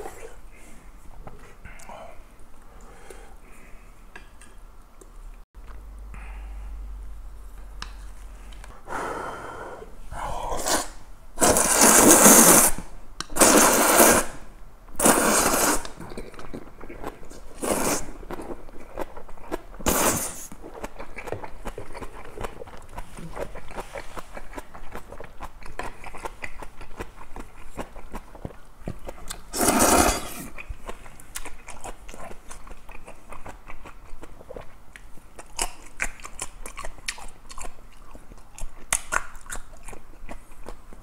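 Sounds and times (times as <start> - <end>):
person slurping noodles: 8.9 - 12.8, 13.4 - 14.4, 15.0 - 16.3, 17.0 - 18.2, 19.8 - 20.5, 29.5 - 30.6
wet chewing with smacking: 20.4 - 29.5, 30.5 - 41.0.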